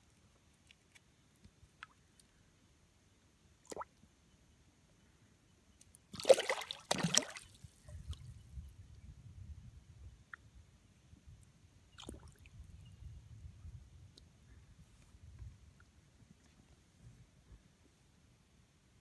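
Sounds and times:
fish splashing at surface: 6.2 - 7.4.

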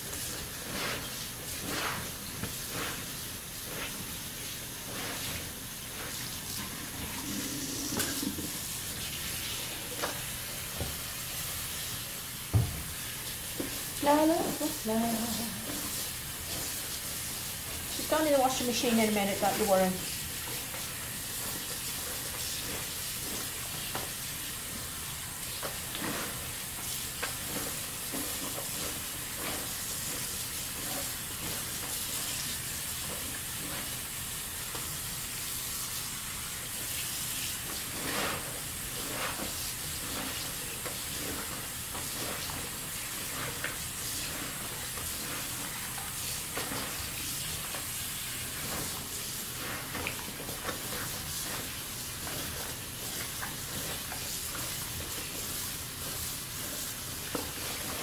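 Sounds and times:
wet fabric swishing and splashing: 0.0 - 6.5
tap water running into sink: 0.0 - 58.0.

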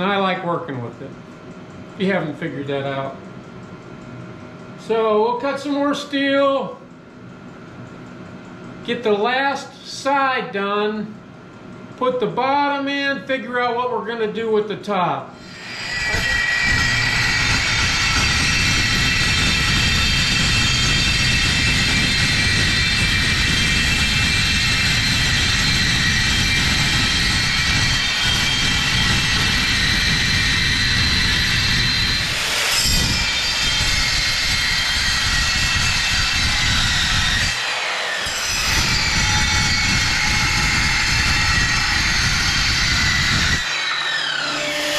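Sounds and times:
electric saw cutting steel: 15.4 - 44.9.

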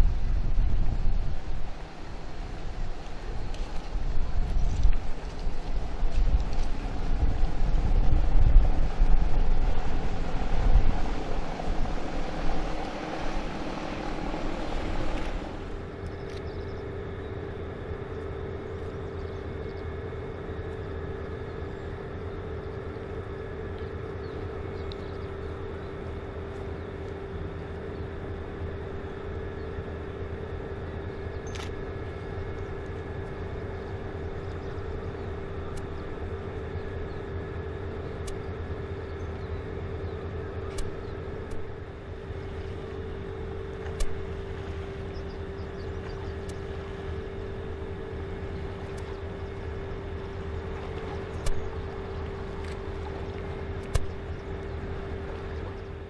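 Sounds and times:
ship engines droning: 0.0 - 56.0.

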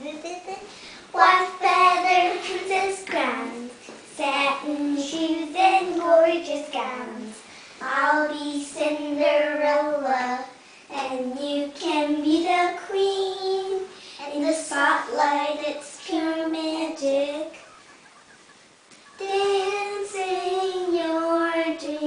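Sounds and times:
child singing unaccompanied: 0.0 - 17.6, 19.2 - 22.0.

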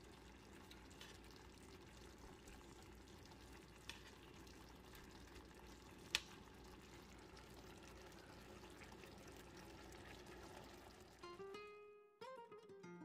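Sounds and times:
faint sizzling in a frying pan: 0.0 - 11.4.

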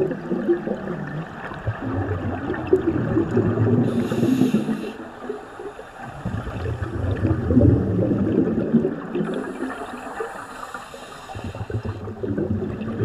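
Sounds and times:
bubbles gurgling: 0.0 - 10.7, 11.3 - 13.0
regulator inhalation hiss: 3.9 - 6.0, 9.3 - 12.0.

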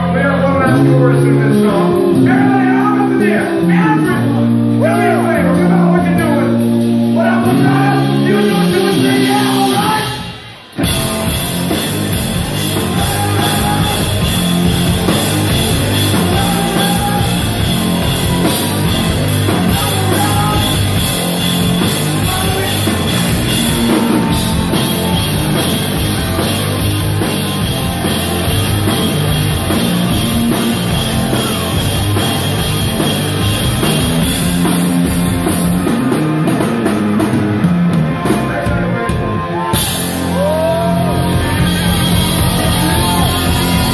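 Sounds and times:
person singing: 0.0 - 10.3, 12.8 - 14.2, 16.1 - 17.7, 19.5 - 20.9
drum kit: 0.0 - 43.9
electric guitar: 0.0 - 43.9.

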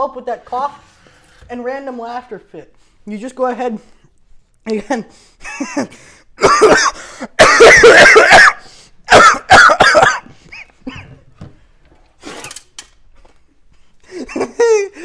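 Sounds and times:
man coughing harshly: 5.5 - 11.2.

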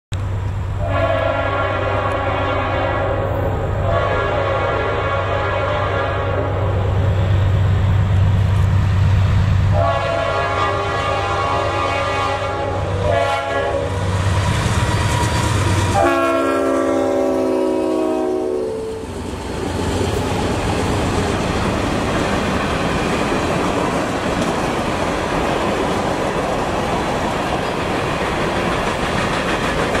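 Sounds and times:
freight cars rumbling: 0.1 - 17.2, 18.7 - 30.0
locomotive horn blasts: 0.8 - 6.7, 9.7 - 14.0, 15.9 - 19.1
wheels clacking over rail joints: 19.1 - 30.0.

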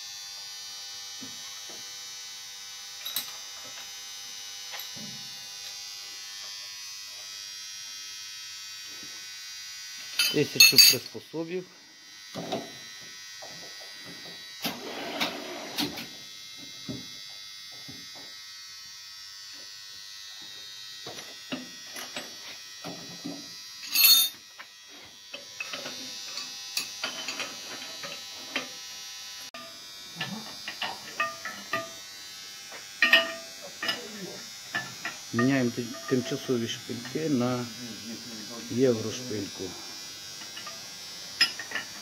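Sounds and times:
boring machine high-pitched whine: 0.0 - 42.0
steel tools clinking: 10.2 - 11.2, 23.8 - 24.4, 25.6 - 28.7, 30.2 - 32.0, 33.0 - 37.2, 40.5 - 42.0.

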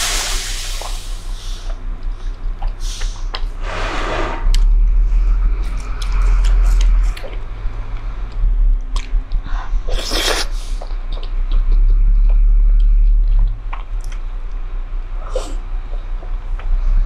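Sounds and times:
steady low hum: 0.0 - 17.0
wet chewing: 5.6 - 14.6
noodle slurp: 9.9 - 10.8.

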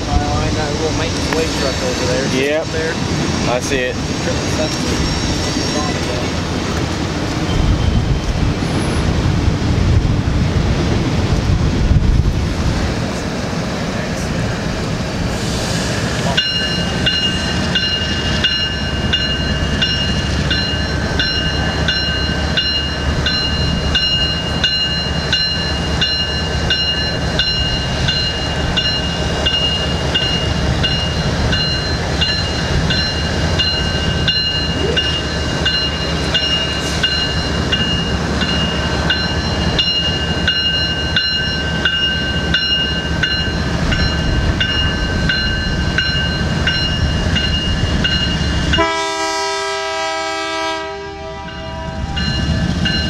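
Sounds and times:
train rumble: 0.0 - 53.0
crossing bell ringing: 16.2 - 53.0.

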